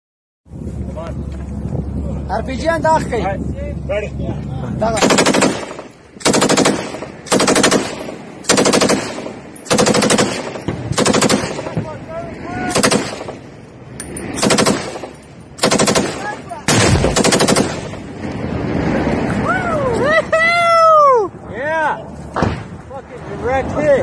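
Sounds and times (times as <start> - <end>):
machine gun bursts: 5.0 - 11.7, 12.7 - 13.4, 14.4 - 18.0.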